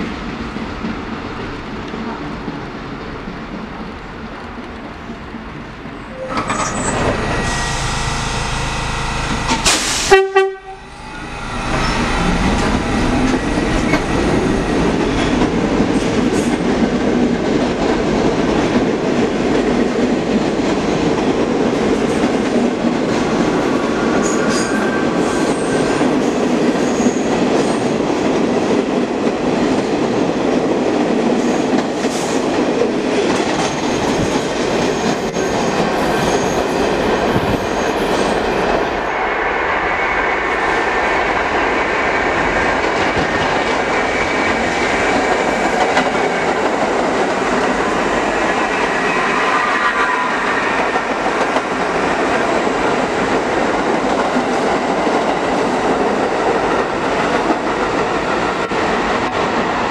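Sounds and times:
train wheels rumbling on rails: 0.0s - 59.9s
high wheel squeal: 6.1s - 10.1s, 10.8s - 14.9s.

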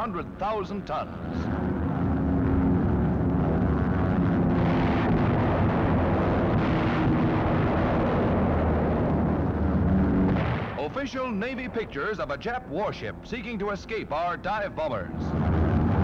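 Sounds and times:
aircraft engines droning: 0.0s - 16.0s
bomb explosions rumbling: 1.4s - 12.6s, 15.1s - 16.0s.

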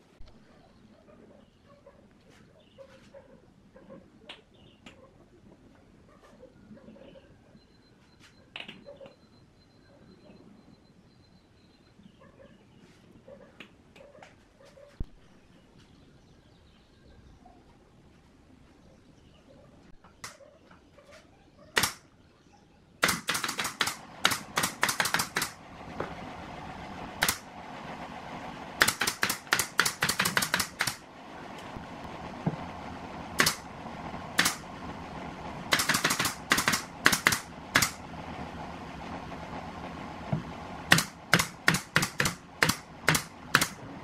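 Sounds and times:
pneumatic nail gun firing: 21.8s - 22.0s, 23.0s - 25.6s, 27.2s - 27.5s, 28.8s - 31.0s, 33.4s - 33.7s, 34.3s - 34.7s, 35.7s - 38.0s, 40.9s - 43.9s.

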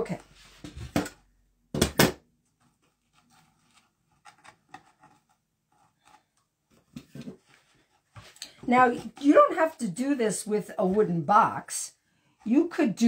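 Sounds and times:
hands rustling craft materials: 2.5s - 11.4s.

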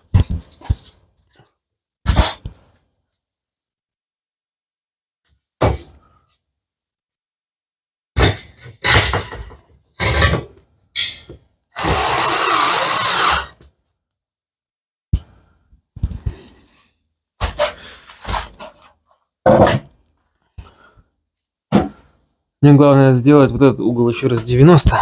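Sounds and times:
power drill running: 11.8s - 13.6s.

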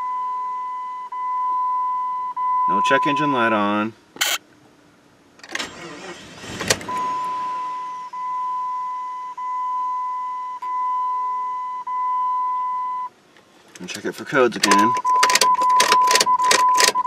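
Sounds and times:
dashboard warning chime beeping: 0.0s - 3.5s, 6.8s - 13.1s, 14.6s - 17.0s.

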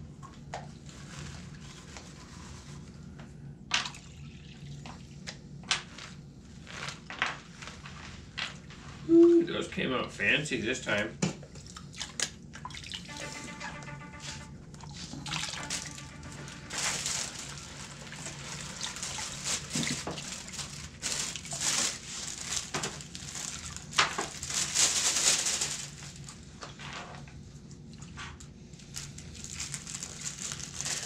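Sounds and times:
water sloshing and splashing: 11.5s - 13.6s, 14.4s - 25.7s.

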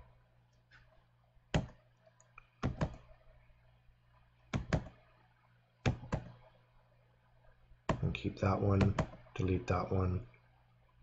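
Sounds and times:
faint low hum: 0.0s - 11.0s
keyboard key taps: 2.6s - 3.0s, 4.6s - 4.9s, 5.9s - 6.3s, 8.8s - 9.2s.

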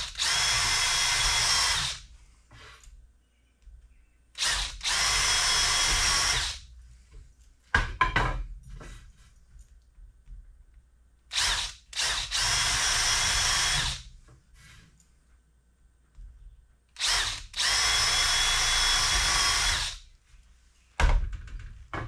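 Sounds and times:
cordless drill boring into wood: 0.0s - 2.0s, 4.4s - 6.6s, 11.3s - 14.1s, 17.0s - 20.0s.

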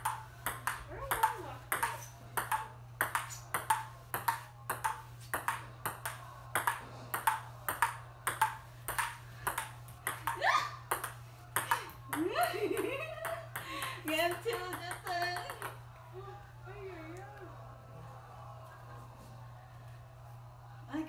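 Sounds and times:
ping pong ball clicking: 0.0s - 15.8s.

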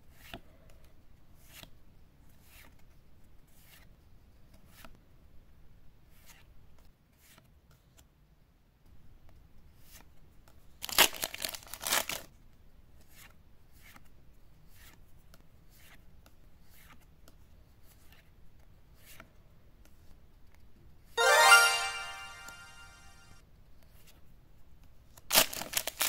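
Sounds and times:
loud crinkling rustle: 25.3s - 26.0s.

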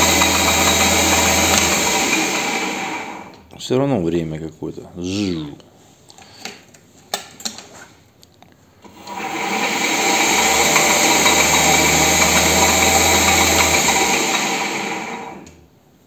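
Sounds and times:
lathe motor running at high speed: 0.0s - 3.3s, 8.9s - 15.6s.

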